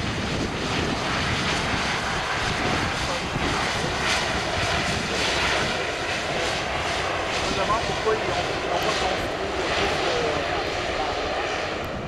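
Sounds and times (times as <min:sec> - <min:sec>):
turboprop engines running: 0:00.0 - 0:12.0
wind buffeting microphone: 0:00.0 - 0:12.0.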